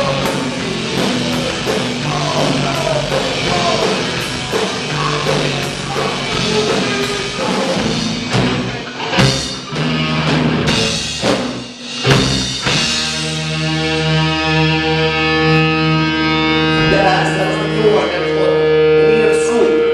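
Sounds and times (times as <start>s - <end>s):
live rock band playing: 0.0s - 19.9s
ringing guitar chord: 13.1s - 19.9s.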